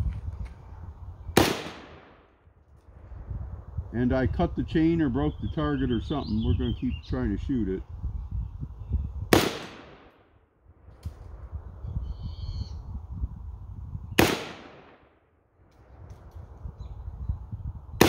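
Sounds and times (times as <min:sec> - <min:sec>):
rifle shots with echo: 0:01.4 - 0:02.3, 0:09.3 - 0:10.2, 0:14.2 - 0:15.2.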